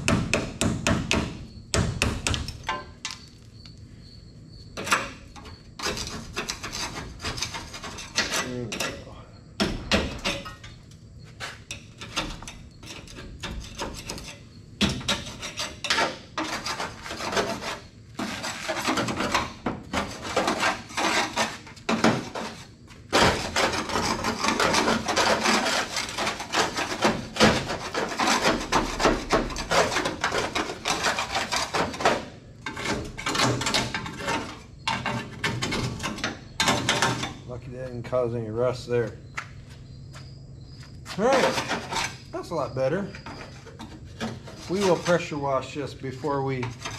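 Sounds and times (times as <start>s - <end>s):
putty knife scraping metal: 4.7s - 9.1s, 11.4s - 37.4s, 41.3s - 42.4s, 43.1s - 45.4s, 46.6s - 46.9s.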